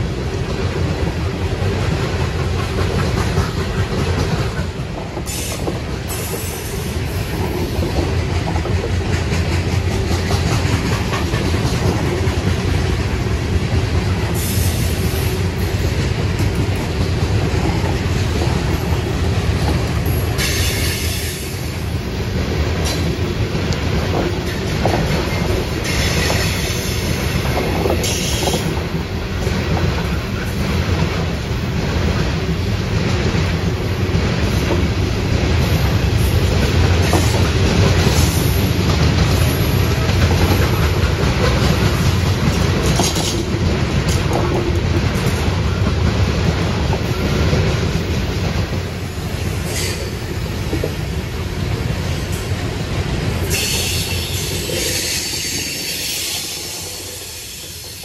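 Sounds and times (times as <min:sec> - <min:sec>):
freight train rumbling past: 0:00.0 - 0:58.0
wheels clicking over rail joints: 0:00.3 - 0:58.0.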